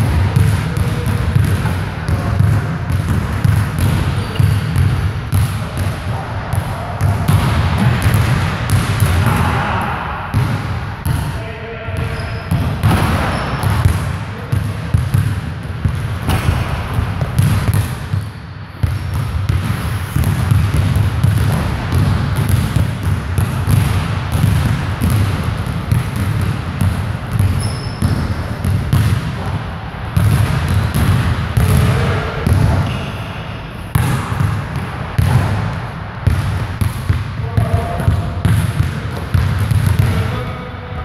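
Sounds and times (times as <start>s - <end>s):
basketballs bouncing on hardwood: 0.0s - 9.6s, 10.3s - 11.3s, 12.0s - 33.1s, 33.9s - 40.2s.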